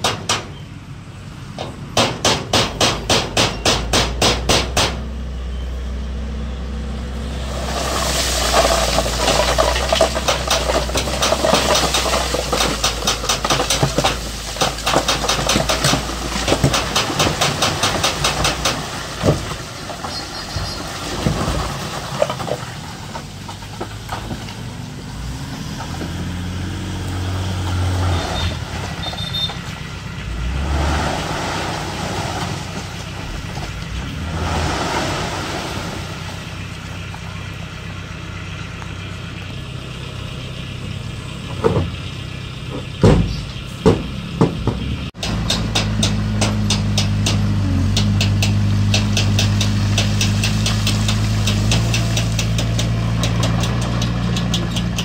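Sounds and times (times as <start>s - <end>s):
heavy machinery diesel engines: 0.0s - 55.0s
sharp knocks: 1.6s - 5.0s, 42.7s - 55.0s.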